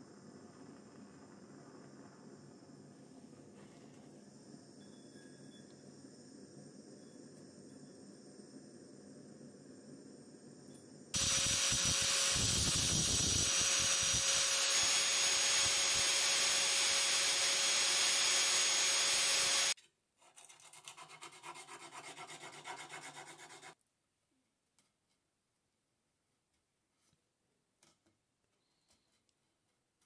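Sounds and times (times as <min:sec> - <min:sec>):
angle grinder grinding steel: 0:11.2 - 0:19.8.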